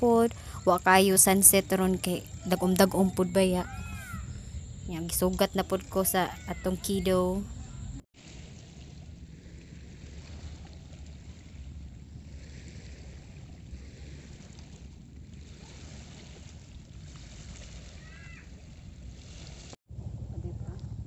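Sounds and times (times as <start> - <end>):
wind rumbling on microphone: 0.0 - 21.0
small waves on pebble shore: 8.2 - 11.6.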